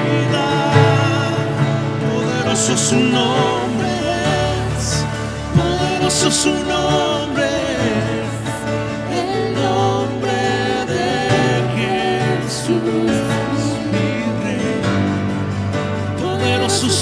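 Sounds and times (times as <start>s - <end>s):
acoustic guitar: 0.0s - 17.0s
keyboard: 0.0s - 17.0s
voices singing slow melody: 0.0s - 17.0s.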